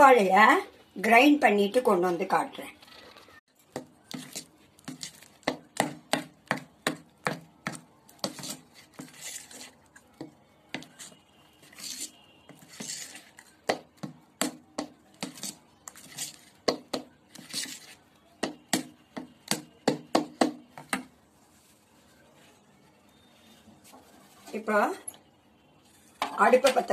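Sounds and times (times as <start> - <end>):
wet scraping of paste: 4.0 - 5.8, 7.7 - 10.2, 10.8 - 14.0.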